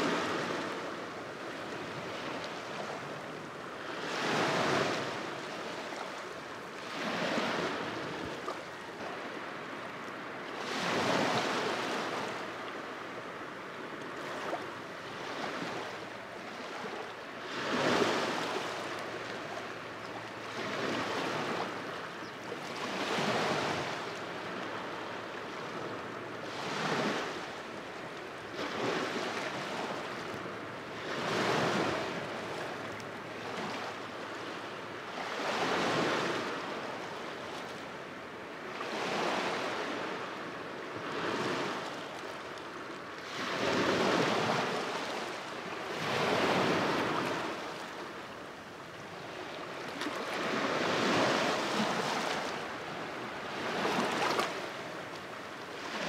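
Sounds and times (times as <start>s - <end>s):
small waves washing onto shore: 0.0s - 56.0s.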